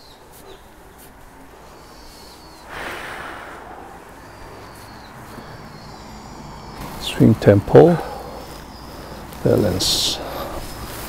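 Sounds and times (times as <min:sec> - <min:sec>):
rush of breathy noise: 0:01.5 - 0:06.2.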